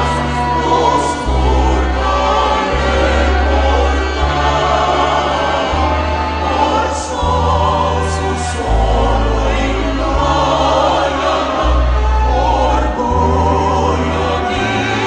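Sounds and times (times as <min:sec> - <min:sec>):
choir singing: 0:00.0 - 0:15.0
instrumental accompaniment: 0:00.0 - 0:15.0
sustained low bass notes: 0:00.0 - 0:15.0.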